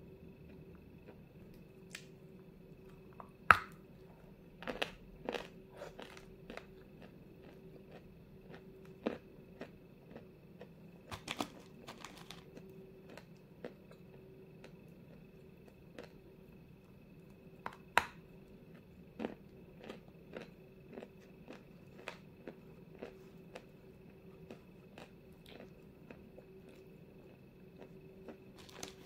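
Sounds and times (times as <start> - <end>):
clay being chewed crunching: 4.6 - 16.2, 18.7 - 29.0.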